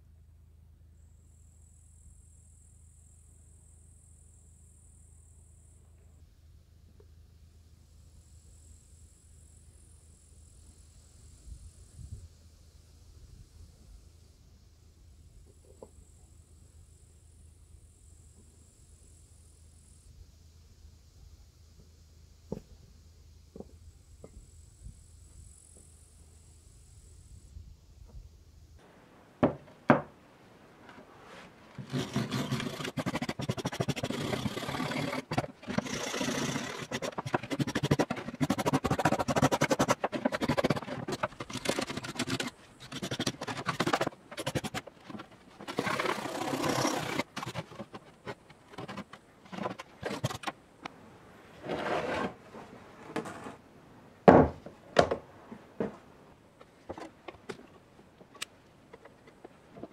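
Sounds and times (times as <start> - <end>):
scraping rust off padlock: 31.8 - 50.5.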